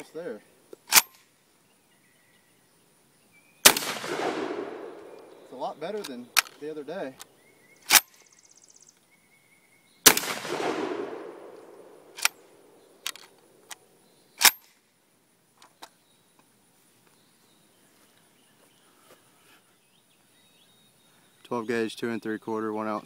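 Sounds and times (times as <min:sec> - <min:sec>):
gun action metallic clicks: 0:00.8 - 0:01.3, 0:03.7 - 0:08.3, 0:10.1 - 0:14.8
shotgun blast echoing: 0:03.6 - 0:06.7, 0:10.0 - 0:13.1.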